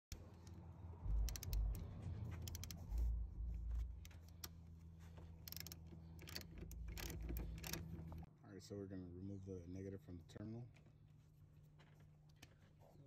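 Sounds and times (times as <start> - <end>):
low thumps: 1.0 - 4.1
socket ratchet clicking: 1.1 - 3.0, 5.4 - 8.2.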